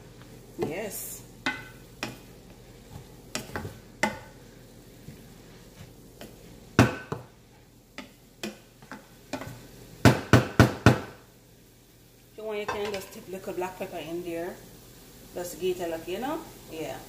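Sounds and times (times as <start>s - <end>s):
wooden spoon scraping a pan: 0.1s - 9.7s.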